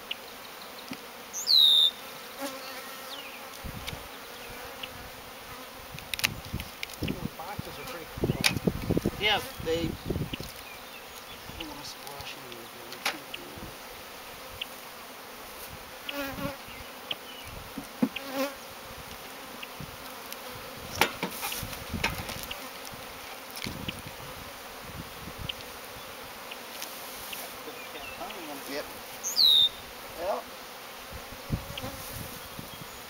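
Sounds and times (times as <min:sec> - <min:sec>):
bees buzzing: 0:00.0 - 0:33.0.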